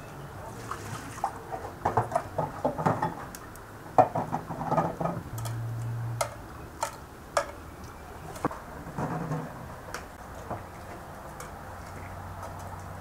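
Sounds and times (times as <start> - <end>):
water splashing in bowl: 0.4 - 8.4.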